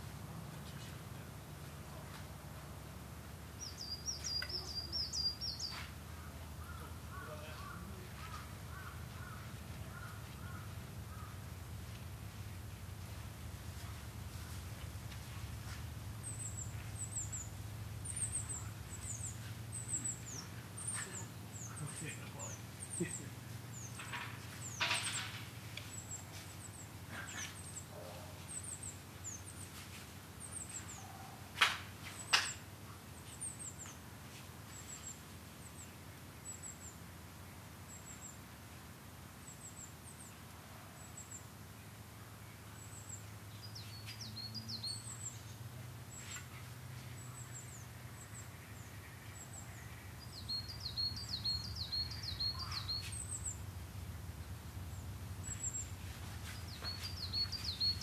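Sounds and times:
small birds chirping: 0:00.0 - 0:58.0
bird trill: 0:03.6 - 0:11.4, 0:47.2 - 0:53.6, 0:55.4 - 0:58.0.

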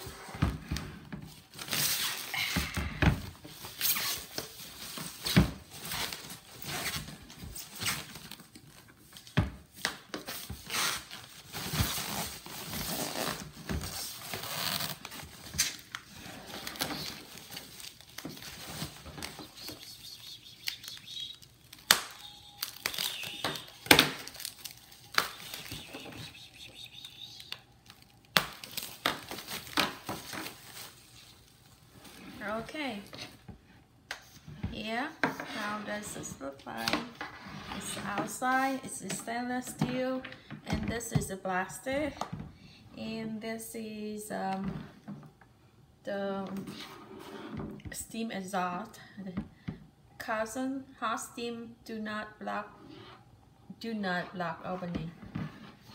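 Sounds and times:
plastic bag crinkling: 0:11.2 - 0:31.8.

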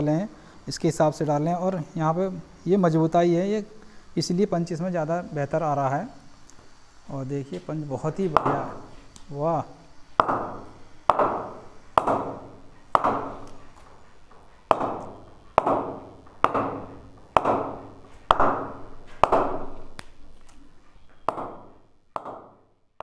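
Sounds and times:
ball bouncing off cricket bat: 0:10.2 - 0:13.4, 0:14.7 - 0:20.2, 0:21.3 - 0:22.6.

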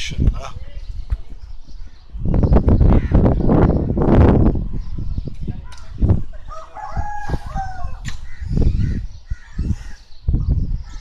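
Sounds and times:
rooster crowing: 0:06.5 - 0:08.0.

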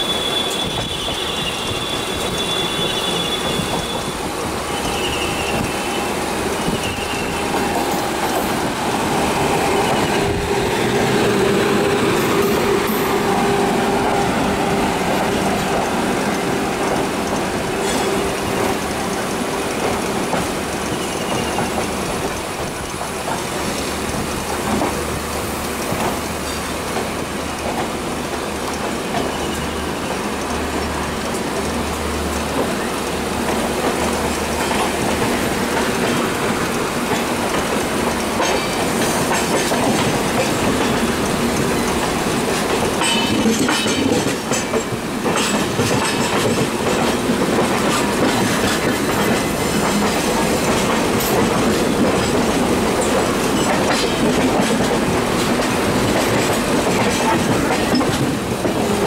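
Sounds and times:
high-pitched wheel squeals: 0:00.0 - 0:07.6
train wheel rumble: 0:00.0 - 0:59.0
wheels clacking over rail joints: 0:00.1 - 0:59.0.

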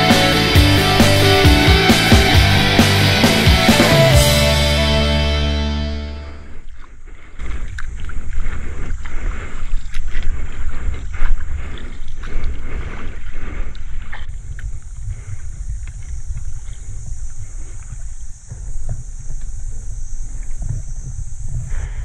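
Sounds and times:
paddle strokes splashing water: 0:06.4 - 0:22.0
wind rumbling on microphone: 0:06.4 - 0:22.0.

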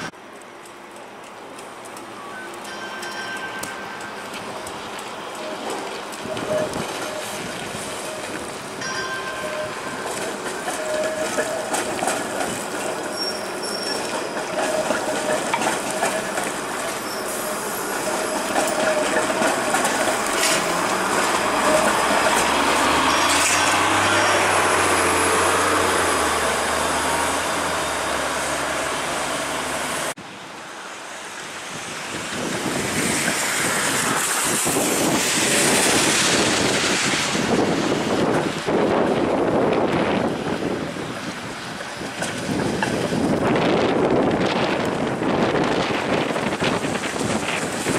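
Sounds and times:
hiss of wet traffic: 0:00.0 - 0:09.9, 0:15.8 - 0:47.9
streetcar running on rails: 0:00.0 - 0:47.9
wind rumbling on microphone: 0:04.5 - 0:09.0, 0:31.6 - 0:47.9.

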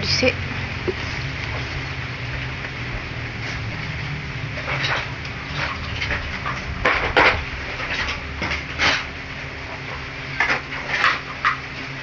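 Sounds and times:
steady low hum: 0:00.0 - 0:12.0
rustling and clattering belongings: 0:03.3 - 0:12.0.

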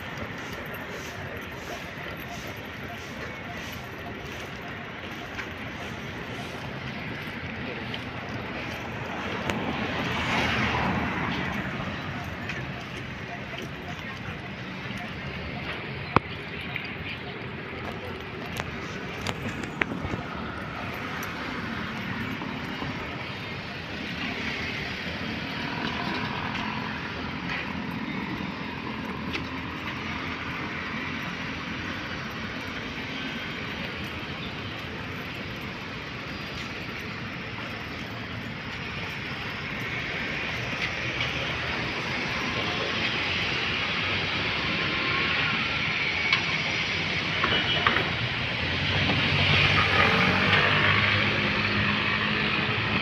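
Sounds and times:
street traffic: 0:00.0 - 0:53.0.

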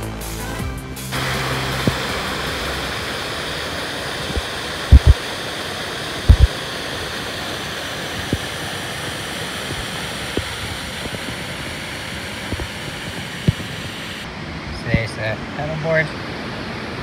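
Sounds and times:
waterfalls rushing: 0:01.1 - 0:17.0
dull low thumps: 0:04.3 - 0:05.2, 0:06.3 - 0:06.5.

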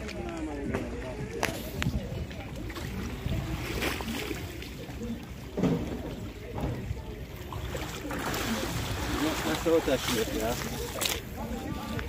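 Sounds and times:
shallow water splashing: 0:02.0 - 0:12.0.

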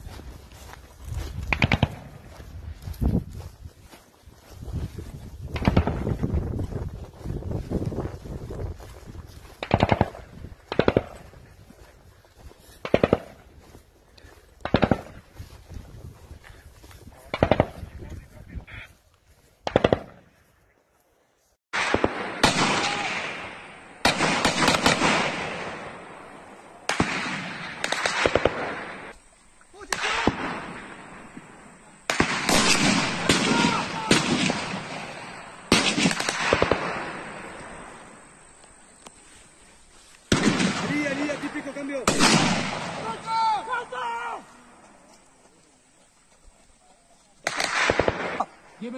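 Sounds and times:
rifle shots: 0:09.6 - 0:11.3, 0:12.8 - 0:13.4, 0:14.6 - 0:15.2, 0:19.6 - 0:20.2, 0:21.8 - 0:29.2, 0:29.9 - 0:38.1, 0:40.3 - 0:43.3, 0:47.4 - 0:48.6.

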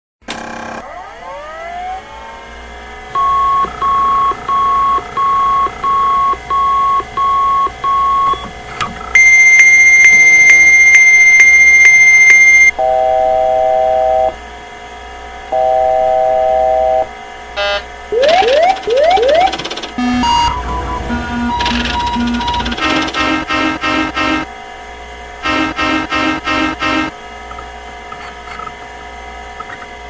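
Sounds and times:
steady electrical hum: 0:02.5 - 0:30.0
high continuous alarm tone: 0:03.1 - 0:14.4, 0:15.5 - 0:24.6, 0:25.4 - 0:27.7
appliance alarm beeps: 0:03.2 - 0:14.4, 0:15.5 - 0:24.5.

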